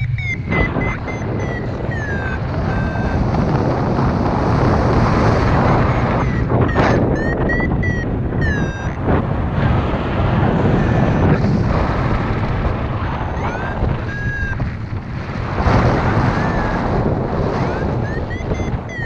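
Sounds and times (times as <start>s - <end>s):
variometer electronic beeps: 0.0s - 9.0s, 10.8s - 11.4s, 13.3s - 14.8s, 15.8s - 19.0s
wind rushing over microphone: 0.0s - 19.0s.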